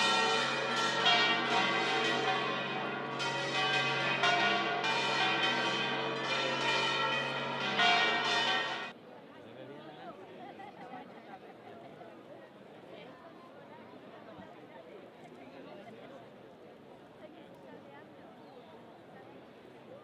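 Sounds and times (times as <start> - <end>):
church bells pealing: 0.0 - 8.9.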